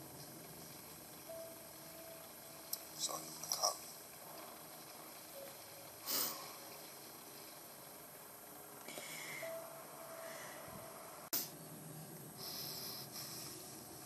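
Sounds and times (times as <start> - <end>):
woman sniffing: 6.0 - 6.4.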